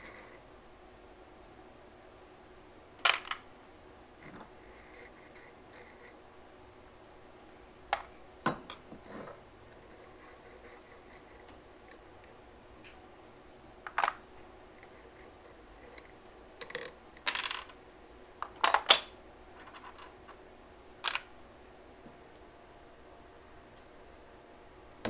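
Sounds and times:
metal parts clinking: 16.6 - 17.7.

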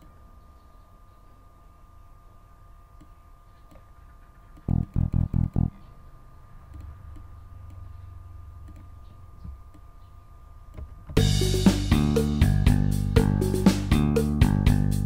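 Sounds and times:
faint low hum: 0.0 - 15.0
synthesized electric bass notes: 4.7 - 5.8, 11.2 - 15.0.

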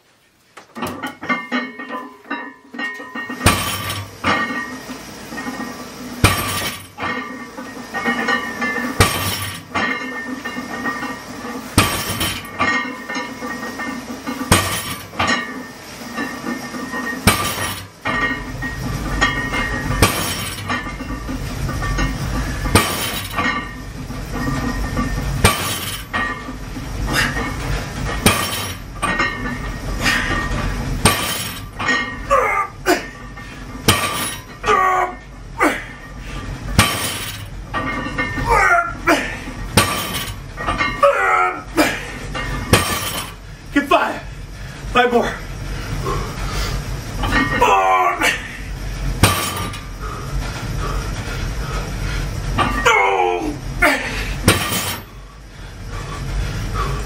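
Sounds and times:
barbell clanking on floor: 0.6 - 34.9, 35.6 - 41.2, 41.8 - 43.4, 49.2 - 49.9, 53.9 - 55.2.

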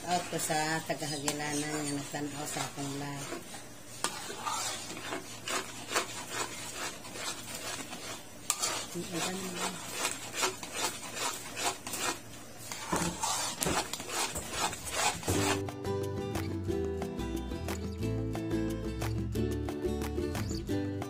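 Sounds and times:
metal spoon scraping a pan: 0.0 - 15.6.

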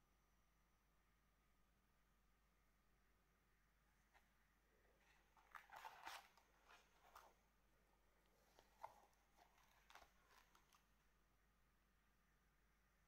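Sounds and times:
cardboard pages rustling: 4.9 - 7.4, 8.3 - 11.0.

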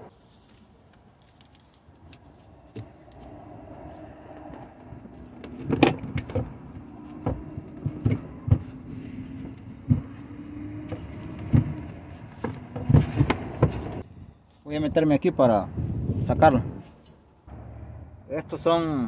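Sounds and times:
knocks and clunks of plastic and metal: 4.4 - 14.0.

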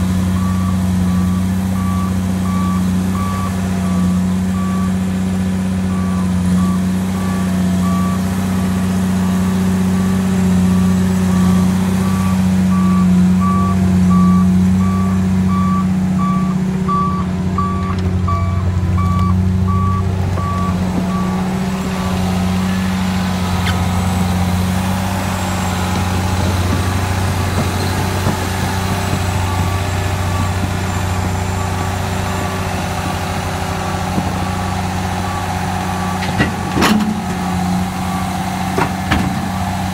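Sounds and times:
diesel engine running hard: 0.0 - 39.9
backup alarm beeping: 10.8 - 23.0.

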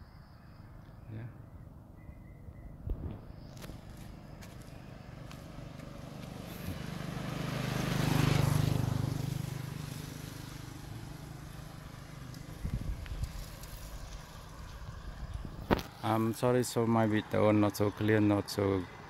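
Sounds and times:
vehicle driving past: 3.5 - 16.0.

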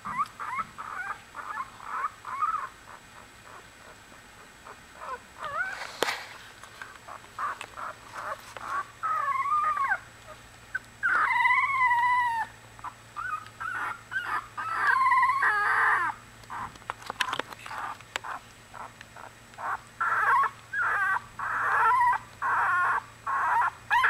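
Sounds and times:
puppies whining and squeaking: 0.0 - 24.0
soft clicks and rustles: 5.4 - 8.9, 16.4 - 20.0.

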